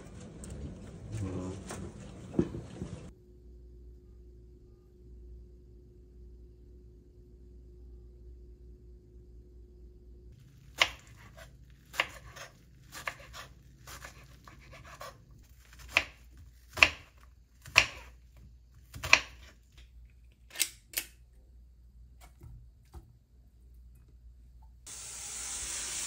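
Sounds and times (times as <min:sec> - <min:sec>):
knife chopping on wooden board: 0:10.8 - 0:18.2, 0:18.8 - 0:19.6.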